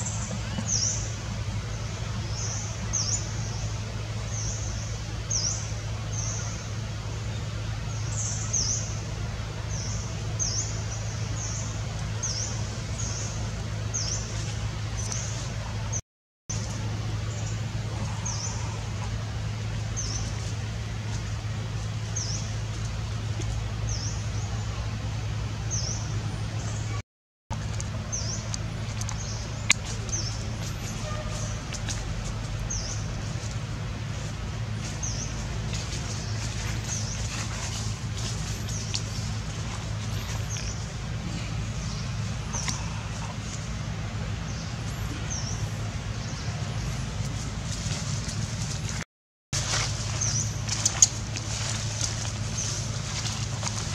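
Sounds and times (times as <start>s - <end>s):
steady low hum: 0.0s - 49.0s, 49.6s - 53.9s
high dipping chirp: 26.0s - 48.4s, 49.6s - 53.9s.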